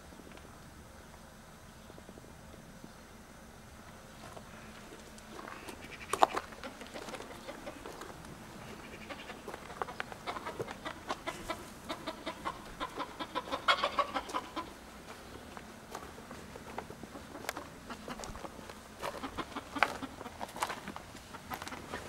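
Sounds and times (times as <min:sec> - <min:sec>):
chickens clucking: 0:04.3 - 0:22.0
sharp chicken call: 0:10.2 - 0:14.7.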